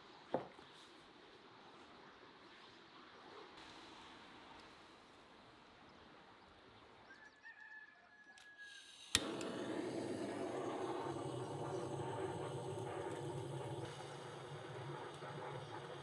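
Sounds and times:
torch flame hissing: 8.8s - 16.0s
torch igniter click: 9.0s - 14.3s.

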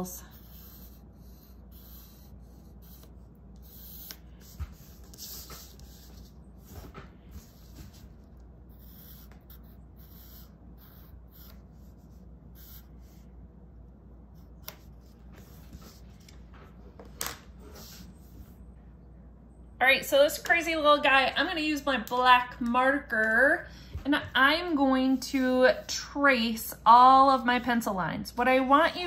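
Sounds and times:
pencil scratching on paper: 0.0s - 13.3s.

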